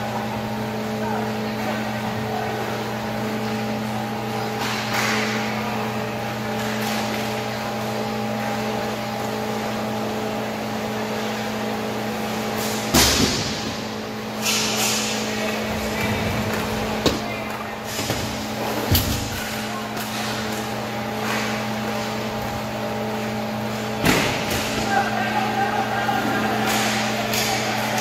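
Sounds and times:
low arena hum: 0:00.0 - 0:28.0
loud bang against boards: 0:12.9 - 0:13.8.

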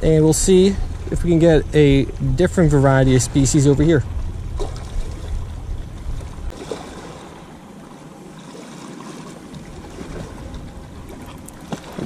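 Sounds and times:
low rumble: 0:00.0 - 0:06.6
waves splashing against rocks: 0:00.0 - 0:12.0.

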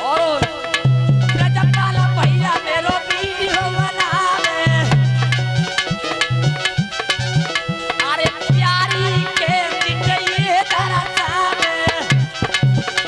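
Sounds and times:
person singing melody: 0:00.0 - 0:05.4, 0:08.0 - 0:12.5
dholak drum rhythm: 0:00.0 - 0:13.0.

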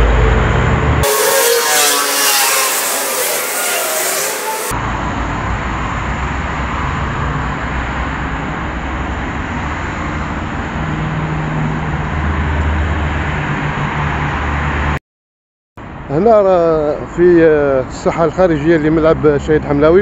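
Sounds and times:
road traffic noise: 0:00.0 - 0:15.0.

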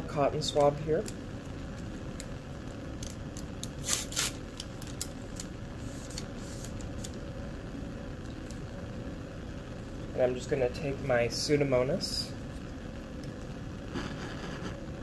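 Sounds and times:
paper wrapper tearing: 0:03.3 - 0:07.2.

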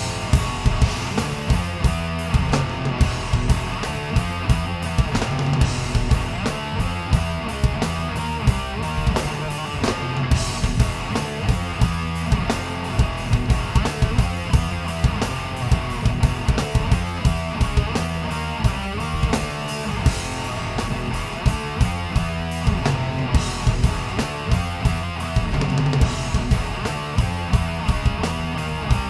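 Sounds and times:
drum kit beat: 0:00.0 - 0:29.0
electric guitar riff: 0:00.0 - 0:29.0.

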